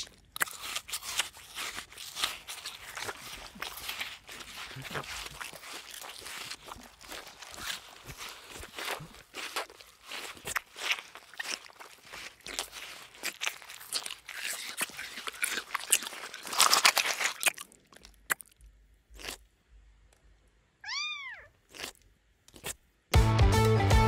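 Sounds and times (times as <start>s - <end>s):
kitten crunching dry kibble: 0.0s - 19.5s, 21.6s - 22.8s
kitten meowing: 20.8s - 21.5s.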